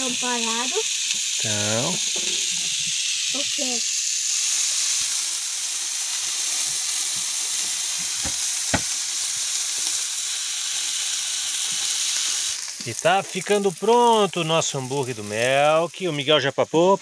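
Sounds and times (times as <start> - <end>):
patties sizzling on a grill pan: 0.0 - 17.0
sharp fat pops: 8.0 - 9.0.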